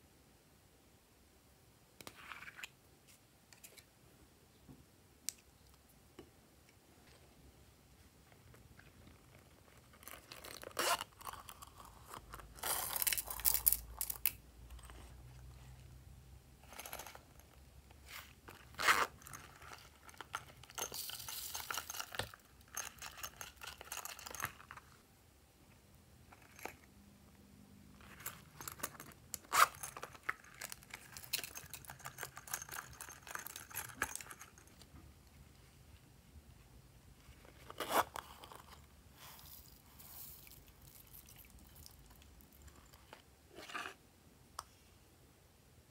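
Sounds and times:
rustling and scraping: 0:27.9 - 0:36.1, 0:37.2 - 0:44.0.

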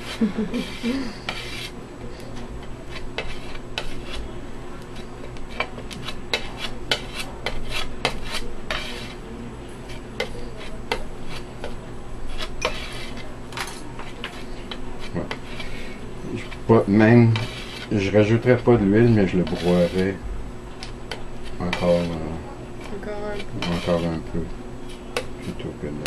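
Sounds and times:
palette knife scraping on glass: 0:00.0 - 0:01.8, 0:02.9 - 0:04.2, 0:05.0 - 0:09.2, 0:12.3 - 0:16.6, 0:17.3 - 0:18.1, 0:19.2 - 0:20.1, 0:21.1 - 0:22.2, 0:23.5 - 0:24.2.

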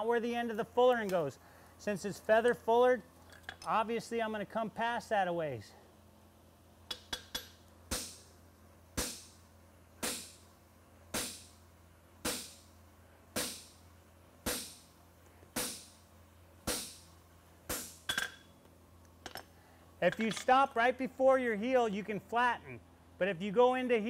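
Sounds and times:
hammer striking metal on anvil: 0:06.9 - 0:08.3, 0:14.5 - 0:14.8, 0:15.6 - 0:16.0, 0:16.7 - 0:17.1.

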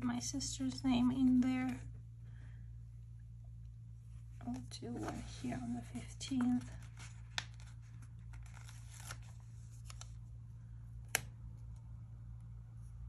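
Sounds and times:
paper rustling: 0:04.4 - 0:10.3.

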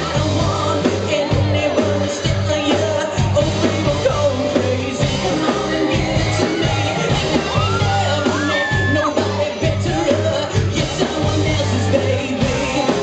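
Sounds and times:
live rock band playing: 0:00.0 - 0:13.0
man singing into microphone: 0:00.0 - 0:13.0.

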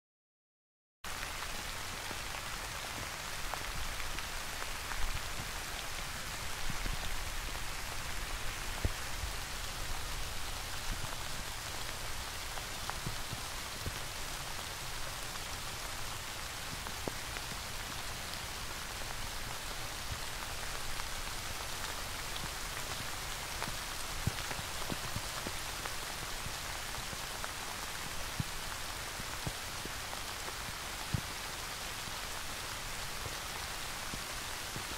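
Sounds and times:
steady rain hiss: 0:01.1 - 0:34.9
raindrops ticking: 0:06.5 - 0:31.5.

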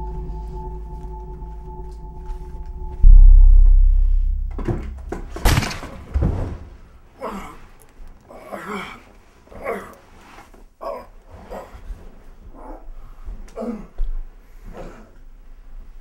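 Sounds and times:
music drone: 0:00.0 - 0:05.4
loud deep boom: 0:00.0 - 0:06.9
heavy thuds: 0:00.0 - 0:07.0.

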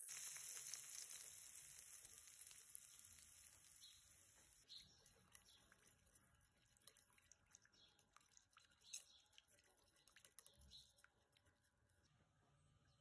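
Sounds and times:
metal spoon stirring in bowl: 0:04.3 - 0:11.4.

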